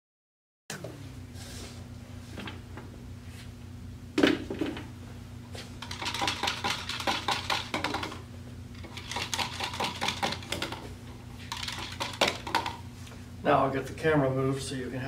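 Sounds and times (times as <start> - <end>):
steady low hum: 0.7 - 15.0
metal stirrers clicking on plastic cups: 5.8 - 8.2, 8.8 - 10.8, 11.4 - 12.8.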